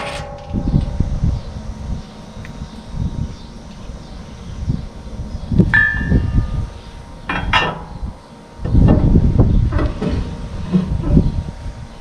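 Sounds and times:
metal clanks: 0.0 - 1.1, 5.8 - 6.5, 7.3 - 8.0, 8.6 - 11.4
low rumbling handling noise: 0.0 - 12.0.

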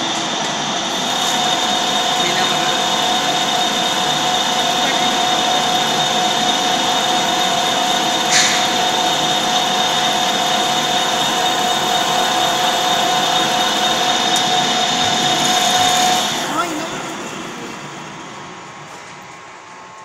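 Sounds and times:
metal lathe whining: 0.0 - 19.4
cutting tool hiss: 0.9 - 16.4.

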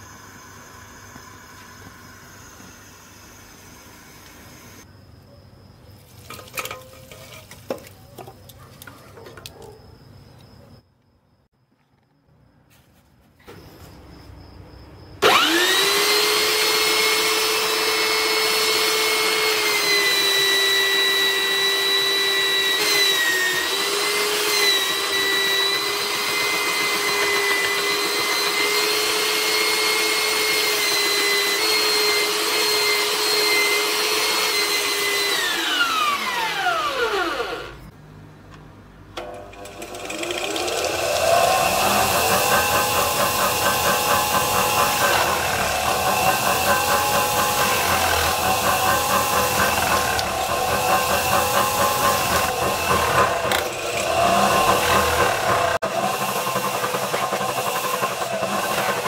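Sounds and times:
belt sander whining: 15.2 - 37.9, 39.2 - 59.0
saw blade grinding on sanding belt: 40.0 - 59.0.

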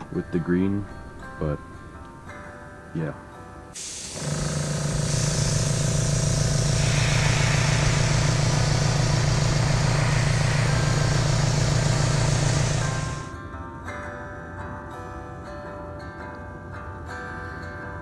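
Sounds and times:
airbrush compressor humming: 3.8 - 13.3
airbrush spraying hiss: 3.8 - 13.3.

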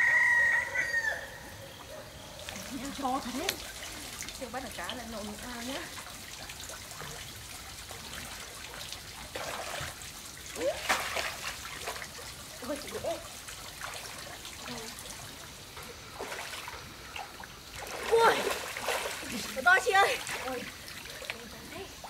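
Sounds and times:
water trickling and splashing: 1.3 - 22.0.

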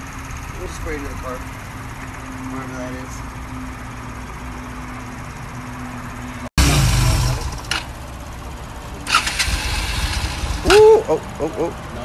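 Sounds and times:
motorcycle engine running: 0.0 - 12.0
low hum: 3.1 - 11.0
engine clicks: 7.0 - 8.0, 9.0 - 10.9.

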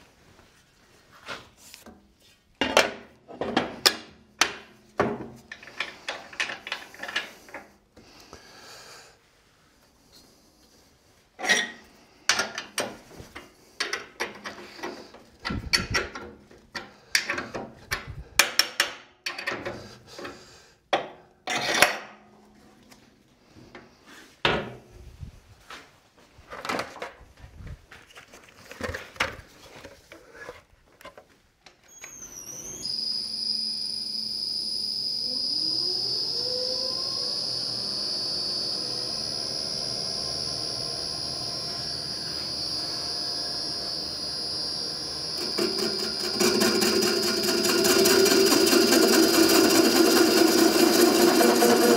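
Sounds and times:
machine motor whine: 31.9 - 51.9.

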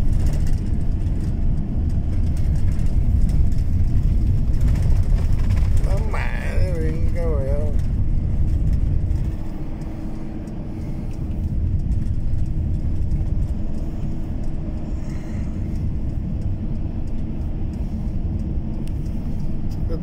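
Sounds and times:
vehicle driving on snowy road: 0.0 - 20.0.

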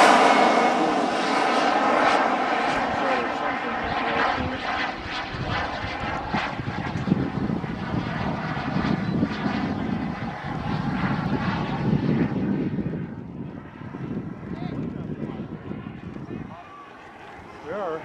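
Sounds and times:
rushing air: 0.0 - 3.0
model jet turbine whine: 0.0 - 18.0.

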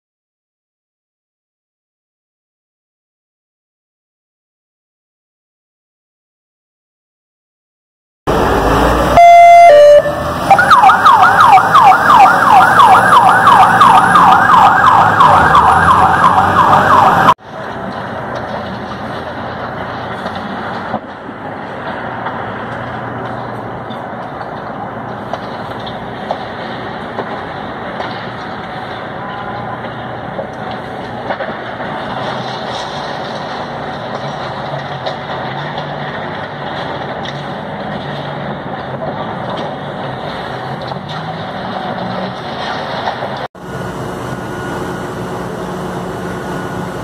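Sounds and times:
dense rushing noise: 8.3 - 23.2
diesel engine humming: 8.3 - 32.2, 43.6 - 47.0.

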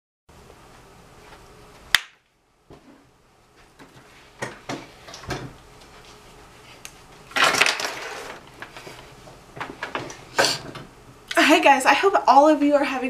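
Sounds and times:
loud rustling scrape: 7.8 - 9.2.

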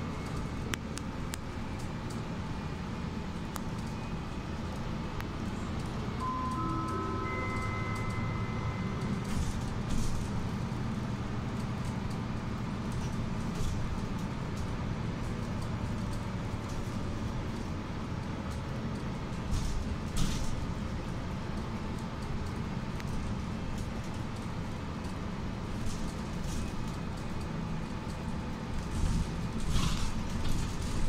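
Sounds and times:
bus engine and road rumble: 0.0 - 31.0.

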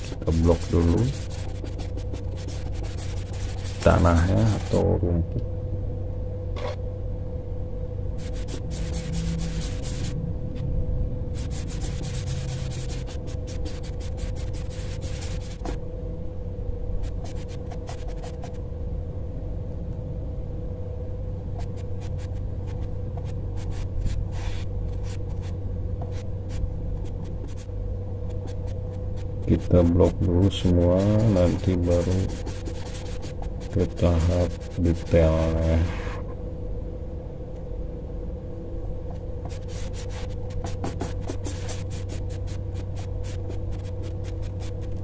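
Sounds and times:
paintbrush scrubbing on paper: 0.0 - 4.9, 8.2 - 10.1, 11.4 - 15.8, 23.6 - 25.5, 28.4 - 36.2, 39.5 - 45.0
steady low hum: 0.0 - 45.0.

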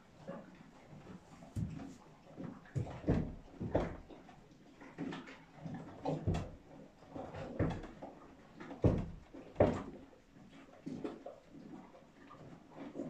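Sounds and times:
dull knocks and thuds: 2.8 - 4.1, 6.1 - 6.6, 7.6 - 8.0, 8.8 - 10.0.

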